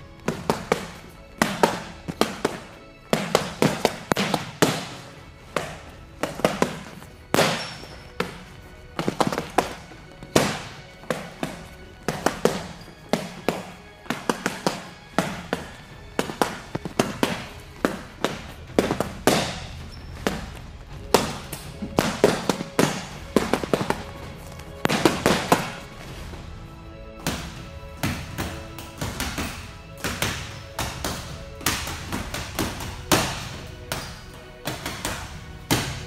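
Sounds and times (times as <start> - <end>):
punches hitting a heavy bag: 5.6 - 8.4.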